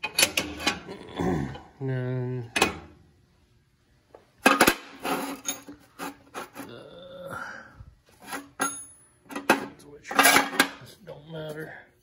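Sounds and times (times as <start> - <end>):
metal bars scraping: 4.5 - 6.7.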